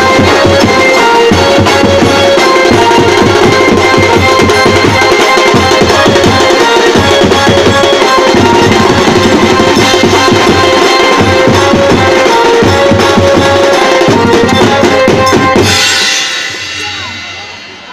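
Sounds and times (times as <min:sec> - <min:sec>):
melody line: 0:00.0 - 0:17.0
drums with cymbals: 0:00.0 - 0:17.9
cymbal ringing: 0:14.9 - 0:17.9.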